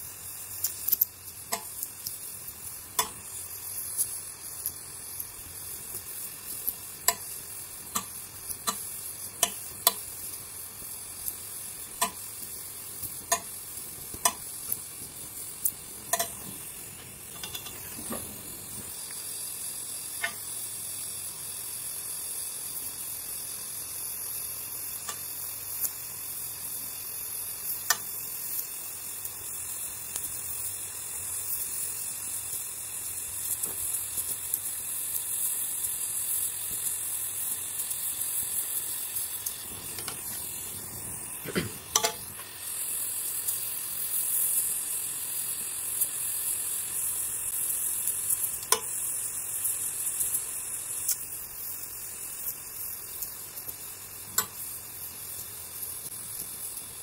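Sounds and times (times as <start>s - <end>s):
gas torch flame hissing: 0.0s - 57.0s.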